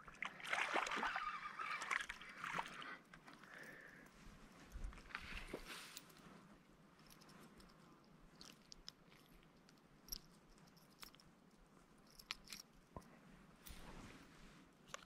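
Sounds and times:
faint clicks and ticks: 7.0 - 13.8.

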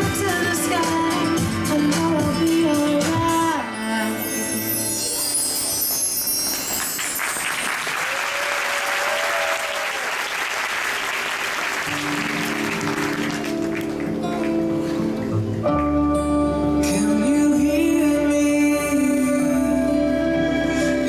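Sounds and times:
audience applauding: 6.3 - 15.4
music with long held notes: 11.9 - 21.0.

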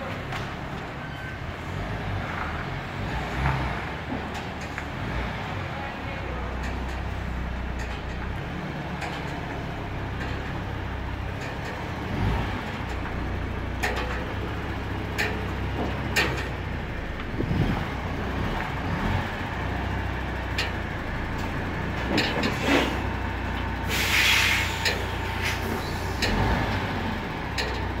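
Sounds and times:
truck diesel engine idling: 0.0 - 28.0
knocks and clanks: 6.6 - 18.9, 20.3 - 23.7, 24.8 - 28.0
air brake hiss: 23.8 - 26.2.

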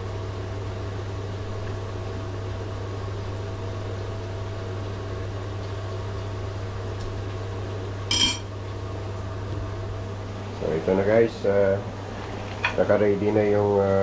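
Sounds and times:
appliance hum: 0.0 - 14.0
metal utensil clinking ceramic bowl: 8.1 - 8.5.

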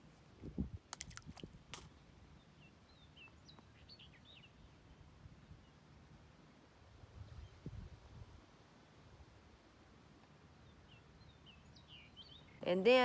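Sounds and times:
small splash in pond water: 0.9 - 2.0
faint birds chirping: 1.8 - 6.5, 10.2 - 13.0.

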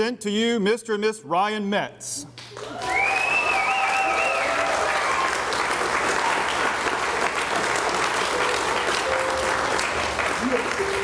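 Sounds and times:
crowd applauding: 2.3 - 11.0.

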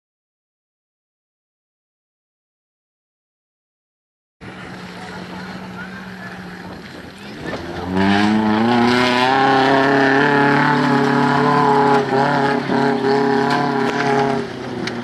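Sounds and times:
car engine revving high: 4.5 - 15.0.

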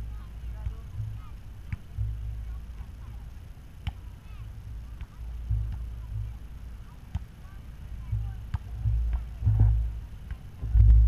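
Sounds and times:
ball thudding: 0.0 - 3.0, 3.8 - 4.2, 4.9 - 6.4, 7.1 - 7.3, 8.0 - 11.0
wind rumble on microphone: 8.0 - 11.0.

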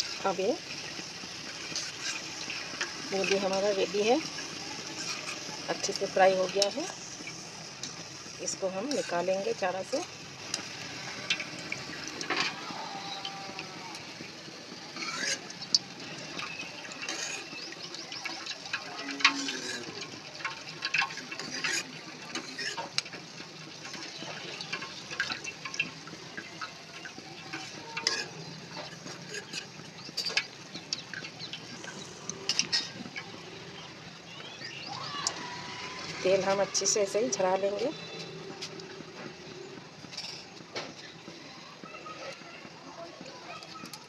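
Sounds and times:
oil dripping and sizzling: 0.0 - 44.0
metal strainer clinking: 27.0 - 30.4.

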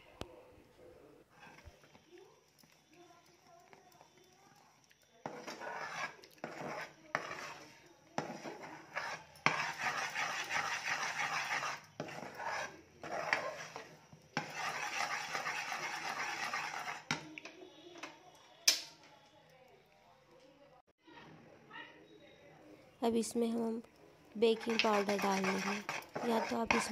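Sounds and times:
spoon scraping metal pan: 1.3 - 2.1, 5.2 - 17.2, 24.4 - 26.9.

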